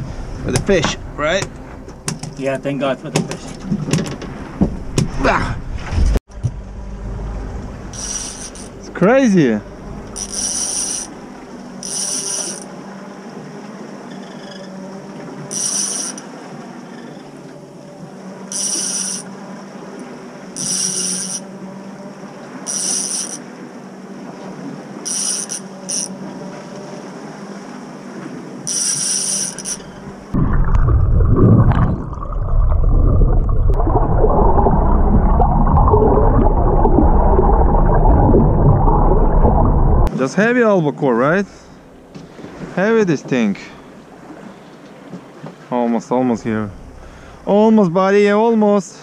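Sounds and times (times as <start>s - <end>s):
underwater rumbling and water noise: 0.0s - 48.6s
low hum from boat: 0.0s - 49.0s
fishing reel cranking: 7.9s - 8.8s, 10.1s - 11.2s, 11.8s - 12.7s, 15.5s - 16.2s, 18.5s - 19.3s, 20.6s - 21.4s, 22.7s - 23.4s, 25.1s - 26.2s, 28.6s - 30.0s.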